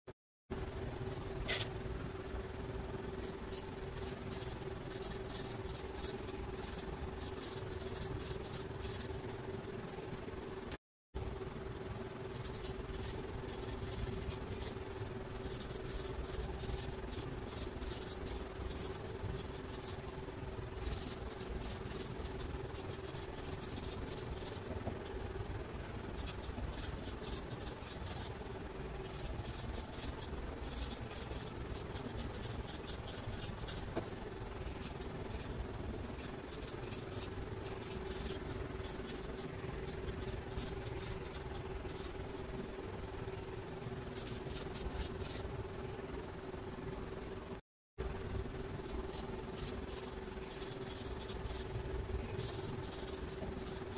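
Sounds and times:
steady low hum: 0.5 - 53.9
marker writing on paper: 26.2 - 28.4, 52.4 - 53.9.

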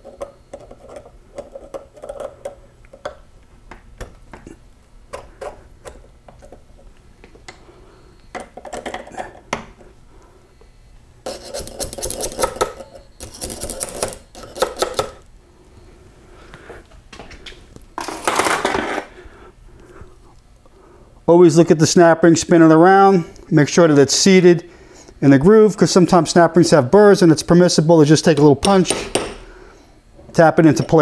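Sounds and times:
metal ring scraping and clinking: 11.2 - 14.6.

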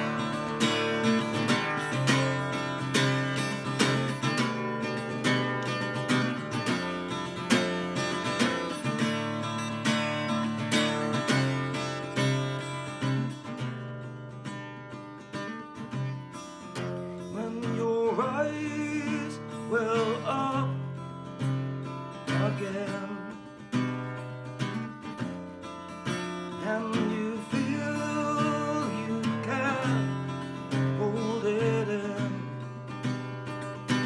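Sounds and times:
acoustic guitar strumming: 0.0 - 34.0.

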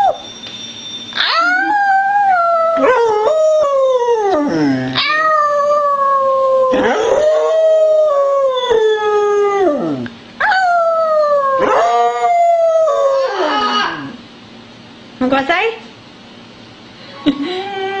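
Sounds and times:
dog howling: 1.2 - 14.2.

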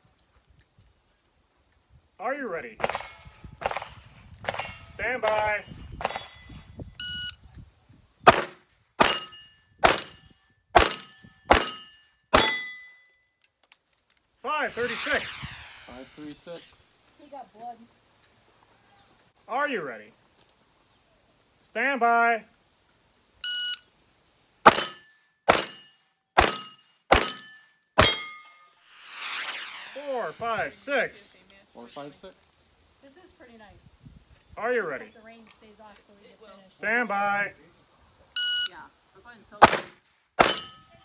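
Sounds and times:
pistol shots: 2.8 - 6.3, 8.3 - 10.2, 10.8 - 12.6, 24.6 - 28.2, 39.6 - 40.8
steel target plate ringing: 9.0 - 13.0, 24.7 - 28.8, 40.4 - 41.0.

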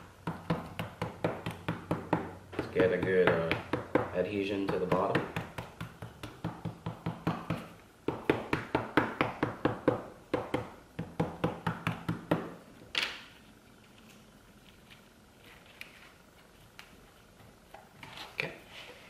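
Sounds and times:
tapping on cardboard strips: 0.2 - 12.6.

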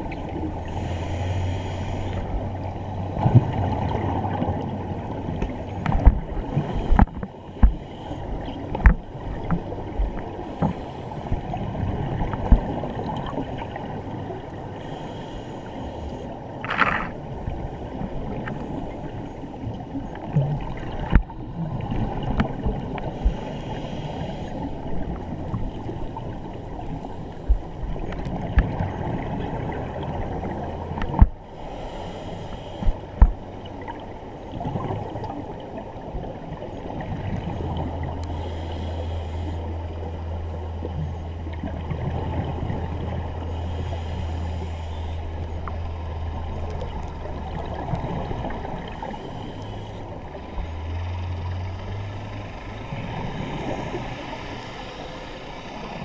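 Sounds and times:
low steady drone: 0.0 - 3.3, 20.8 - 56.0
muffled underwater water rush: 0.0 - 56.0.

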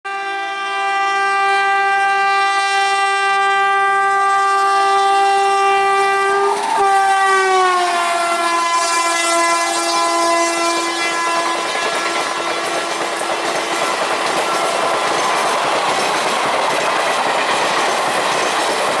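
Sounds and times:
locomotive horn blast: 0.1 - 14.0
train wheel and rail noise: 0.1 - 19.0.

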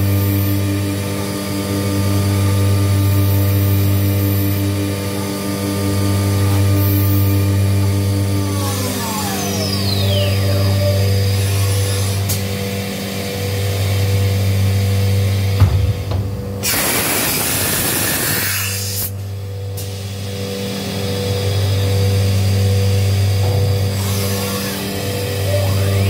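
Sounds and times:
machine mechanical hum: 0.0 - 26.0
compressed air hiss: 16.6 - 19.1.

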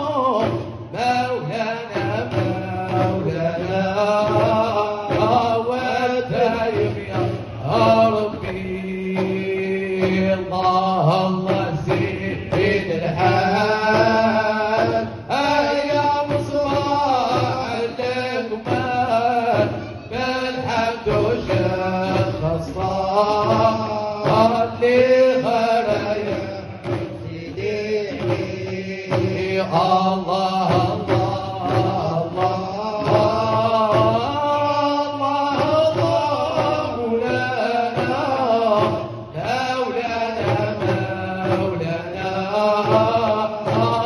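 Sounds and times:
men chanting together: 0.0 - 44.0.

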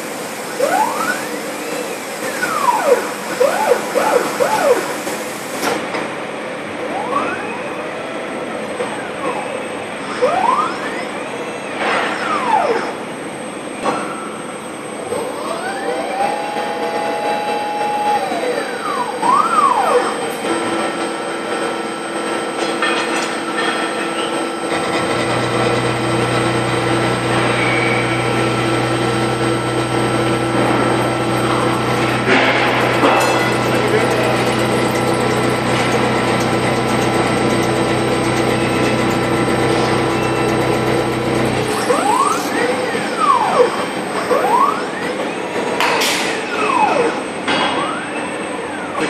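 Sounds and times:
milling machine whine: 0.0 - 49.0.

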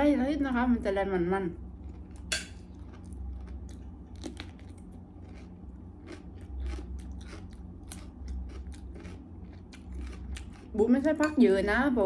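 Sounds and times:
crunchy vegetable being chewed: 1.7 - 11.0.

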